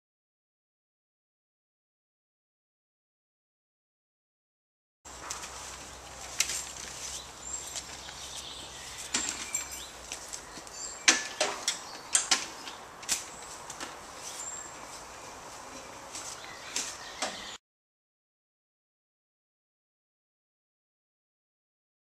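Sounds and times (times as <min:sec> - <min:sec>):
bird chirps: 0:07.0 - 0:13.6, 0:14.2 - 0:17.6.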